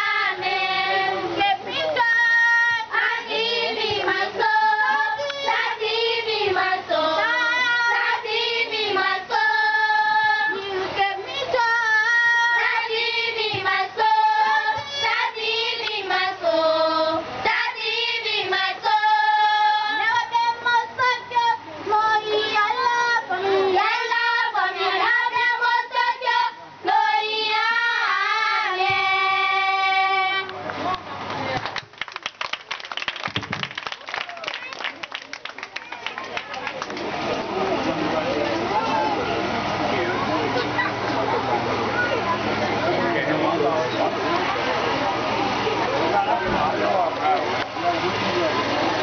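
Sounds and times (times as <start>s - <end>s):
children singing: 0.0s - 30.5s.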